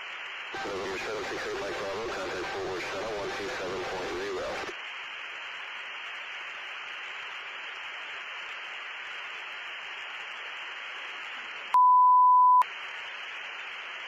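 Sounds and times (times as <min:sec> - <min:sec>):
radio static hiss: 0:00.0 - 0:14.0
censor bleep: 0:11.8 - 0:12.6.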